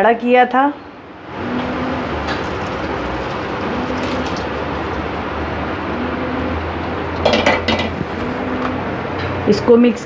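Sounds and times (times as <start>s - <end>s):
milk sizzling in a wok: 1.4s - 5.2s.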